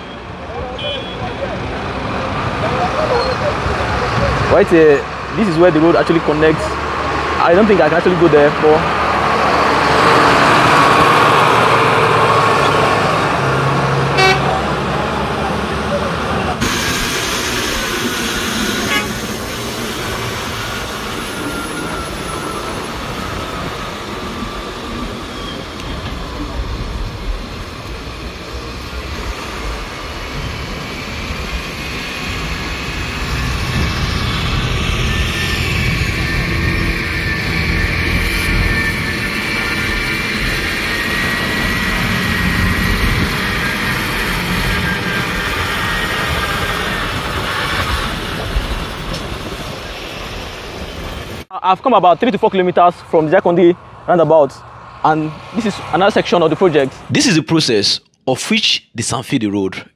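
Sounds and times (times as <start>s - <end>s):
truck horn toot: 0.0s - 1.4s, 14.1s - 14.7s, 18.7s - 19.4s.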